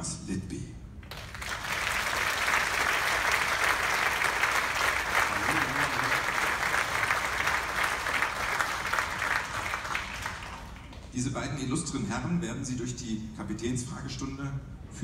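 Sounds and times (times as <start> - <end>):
audience applauding: 1.1 - 11.1.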